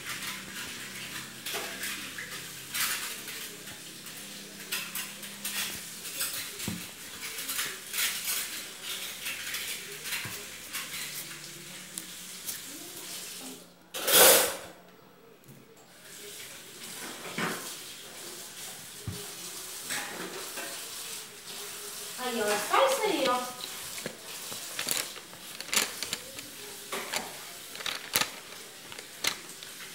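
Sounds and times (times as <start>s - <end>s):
paper rustling: 22.2s - 29.9s
pencils clicking on table: 23.2s - 29.9s.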